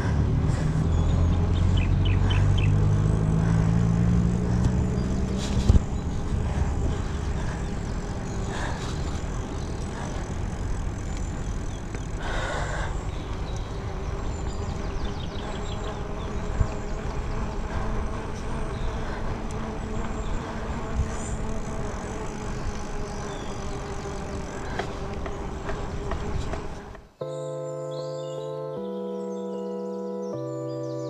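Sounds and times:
bicycle tyres on asphalt: 0:00.0 - 0:27.2
birds chirping: 0:00.0 - 0:31.0
wind rushing over microphone: 0:04.4 - 0:09.5, 0:15.2 - 0:26.9.

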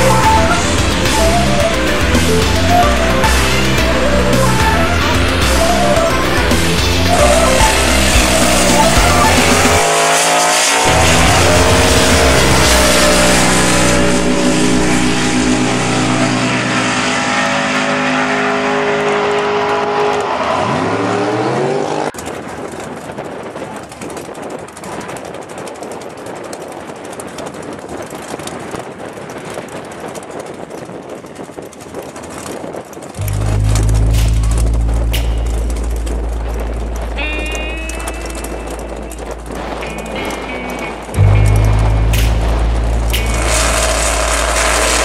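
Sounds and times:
outdoor rushing noise: 0:00.0 - 0:24.9, 0:33.1 - 0:45.0
race car engines at full throttle: 0:00.0 - 0:26.2, 0:29.8 - 0:45.0
race car engine idling: 0:33.2 - 0:45.0.

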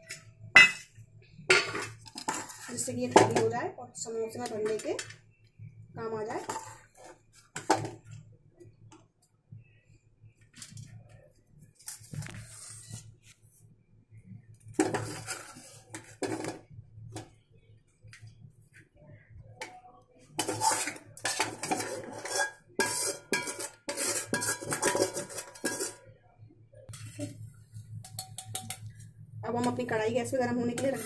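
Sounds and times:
metal spoon scraping a metal pan: 0:01.5 - 0:03.5, 0:06.4 - 0:07.8, 0:11.8 - 0:13.1, 0:14.8 - 0:16.6, 0:20.4 - 0:26.0, 0:30.6 - 0:31.0.

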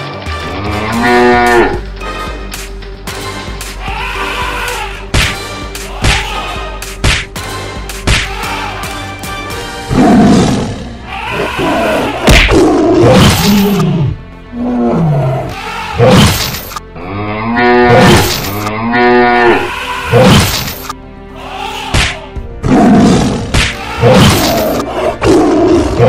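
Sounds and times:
background music: 0:00.0 - 0:26.0
cattle mooing and bellowing: 0:00.4 - 0:01.8, 0:17.0 - 0:20.4.

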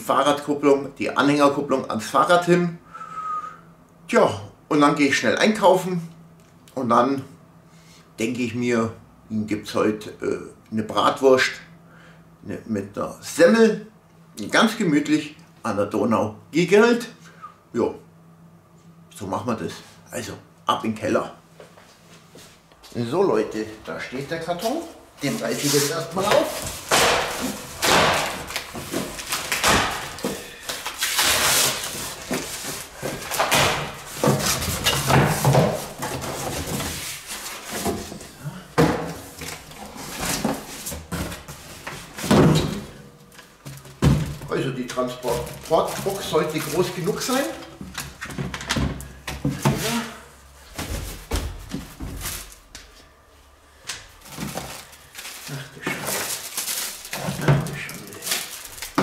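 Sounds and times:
cardboard flaps rustling: 0:24.6 - 0:43.0, 0:45.2 - 0:50.0, 0:50.7 - 0:52.7, 0:54.2 - 0:59.0
packing tape ripping: 0:25.4 - 0:35.0, 0:54.4 - 0:59.0.

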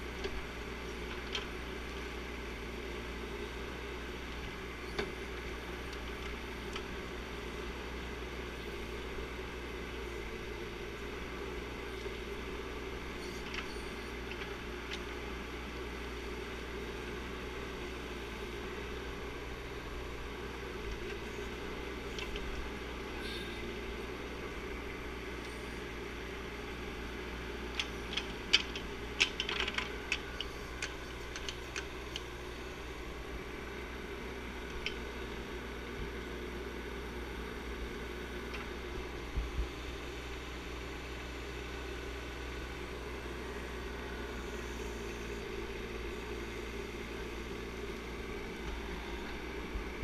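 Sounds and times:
mini excavator running: 0:00.0 - 0:50.0
sharp clicks and rattles: 0:27.7 - 0:32.3.

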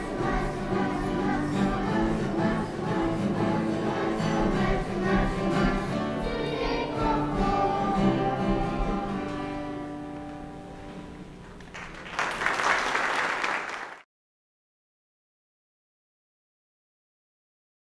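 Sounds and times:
children's choir singing: 0:00.0 - 0:09.9
instrumental accompaniment: 0:00.0 - 0:11.2
audience applause: 0:11.6 - 0:14.0.

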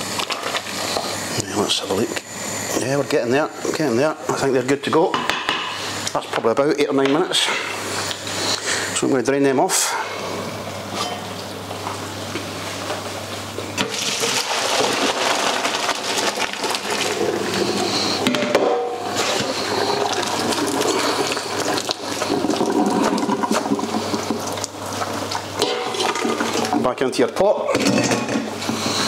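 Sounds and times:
water poured into a colander: 0:13.9 - 0:17.2.

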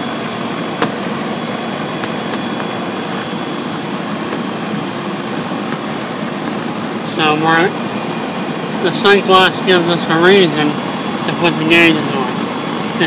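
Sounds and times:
air conditioner rushing: 0:00.0 - 0:13.0.

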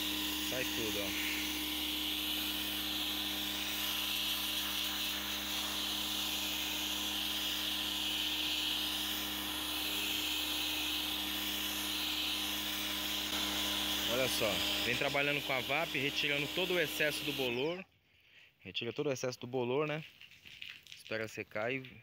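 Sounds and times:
pressure washer spraying roof sheets: 0:00.0 - 0:17.6
pressure washer hum: 0:00.0 - 0:17.8.

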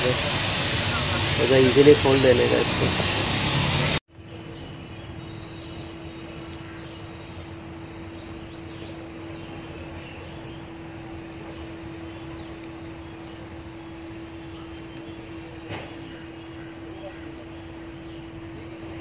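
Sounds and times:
burst of noise: 0:00.0 - 0:04.0.

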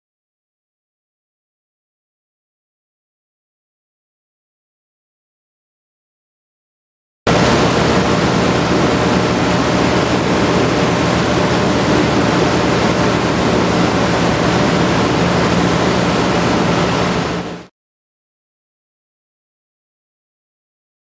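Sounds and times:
motorboat engine drone: 0:07.3 - 0:17.7
rushing water: 0:07.3 - 0:17.7
wind noise on microphone: 0:07.3 - 0:17.7.

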